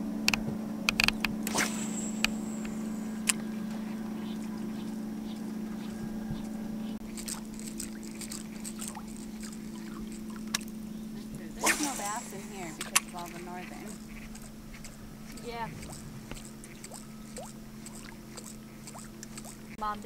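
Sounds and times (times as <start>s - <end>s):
boat motor hum: 0.0s - 20.0s
sharp clicks: 0.2s - 3.5s, 7.0s - 10.8s.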